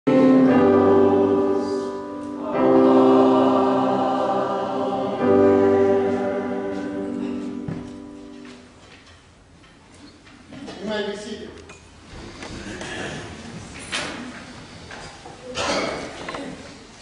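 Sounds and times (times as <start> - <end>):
choir singing held chords: 0.1 - 8.8.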